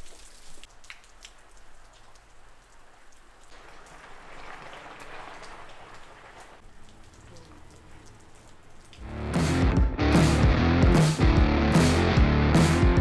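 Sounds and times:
steady rain falling: 0.0 - 9.8
drops ticking: 0.1 - 10.6.

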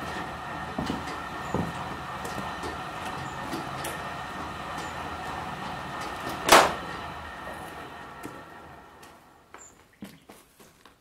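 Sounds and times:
grindstone machine humming: 0.0 - 9.5
loud burst of noise: 0.0 - 9.5.

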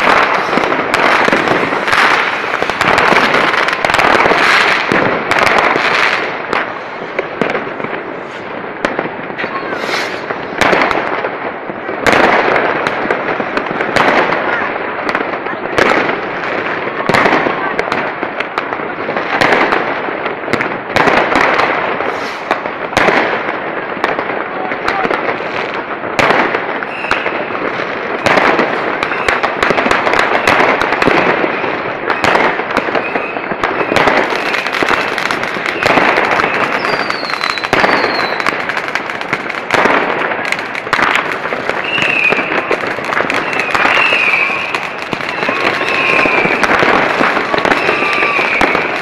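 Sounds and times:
fireworks bangs and crackling: 0.0 - 49.0
firework falling whistles: 9.4 - 10.5, 22.0 - 22.5, 26.8 - 27.5, 29.0 - 29.5, 30.4 - 38.5, 41.7 - 49.0.

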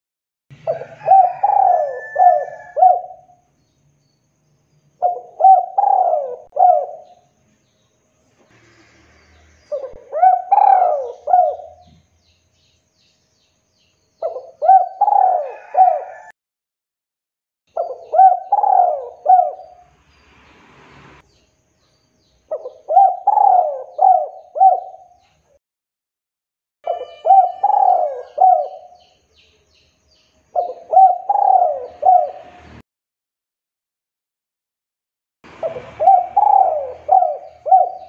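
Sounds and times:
dove cooing: 0.6 - 3.4, 5.0 - 7.2, 9.7 - 12.0, 14.2 - 16.3, 17.7 - 19.8, 22.5 - 25.2, 26.9 - 29.0, 30.6 - 32.6, 35.5 - 38.0.

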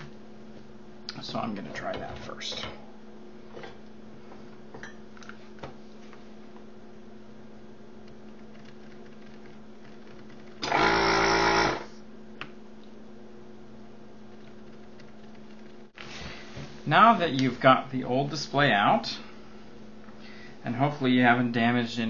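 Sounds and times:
desoldering pump running: 7.9 - 13.0.

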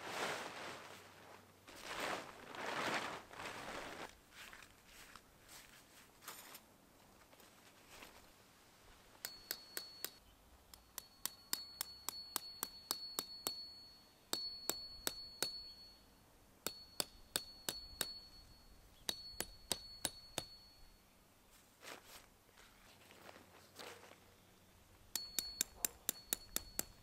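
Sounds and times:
hammer striking metal tent peg: 9.2 - 16.0, 16.6 - 20.8, 25.1 - 27.0.

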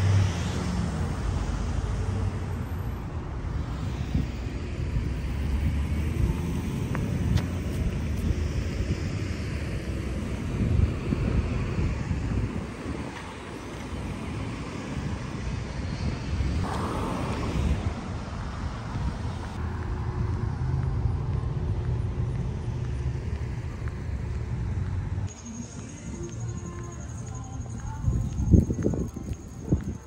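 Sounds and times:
car passing by: 0.0 - 25.3
street traffic noise: 0.0 - 30.0.

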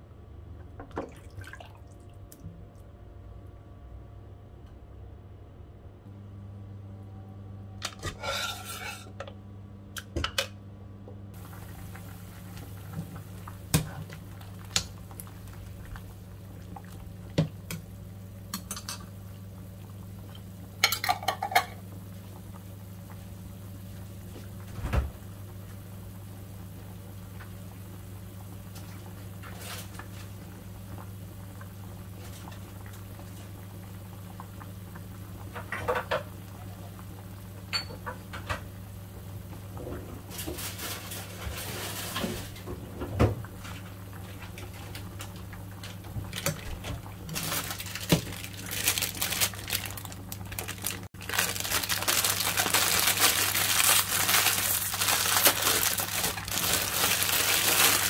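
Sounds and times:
steady low hum: 0.0 - 58.0
metal ladle scraping cooking pot: 8.0 - 9.2.

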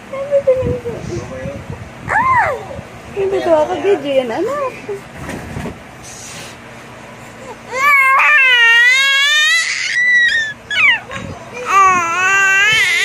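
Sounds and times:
baby squealing: 7.7 - 11.1, 11.7 - 13.0.

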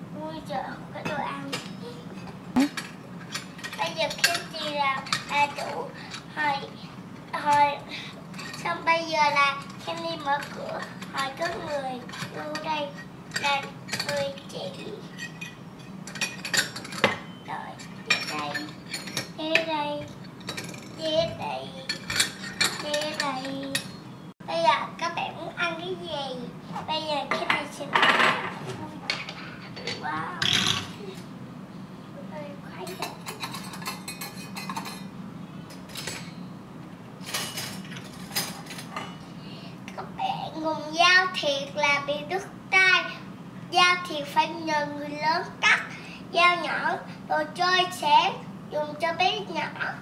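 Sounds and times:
metal pots and lids clinking: 21.9 - 24.0.

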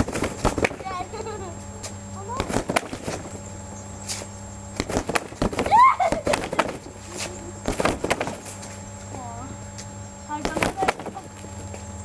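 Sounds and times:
punches thudding on punching bag: 0.0 - 0.9, 2.3 - 3.4, 4.8 - 6.8, 7.6 - 8.5, 10.4 - 11.3.

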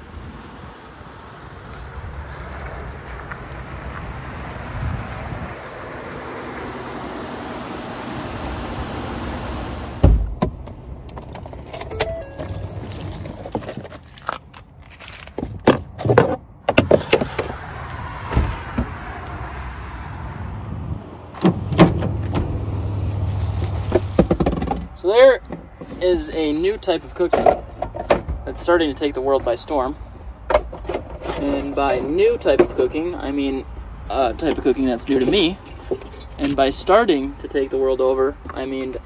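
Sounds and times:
pickup truck driving slowly: 0.5 - 10.0
wind rushing on microphone: 1.6 - 6.4, 17.4 - 22.5
wind buffeting microphone: 1.8 - 6.3
heavy thump: 10.0 - 10.6
tailgate latch clunk: 21.4 - 22.6.

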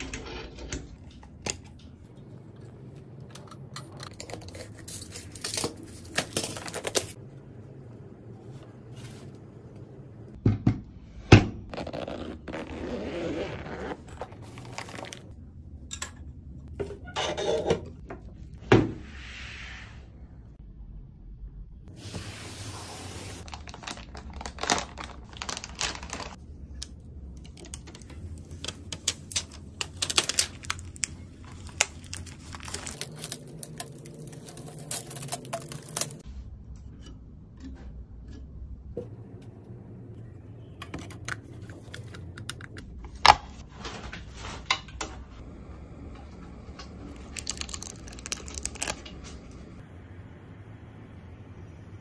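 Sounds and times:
cardboard packaging rustling: 14.1 - 15.3, 23.4 - 26.4, 28.7 - 36.2.

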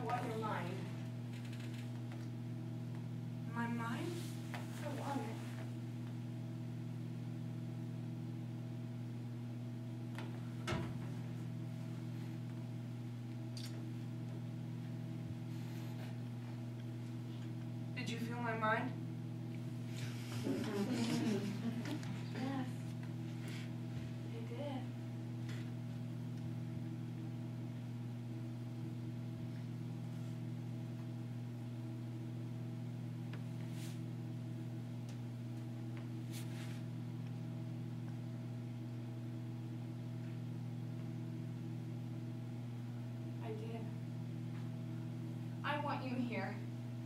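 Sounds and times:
low hum and hiss: 0.0 - 47.0
soft rustle: 36.2 - 36.9.

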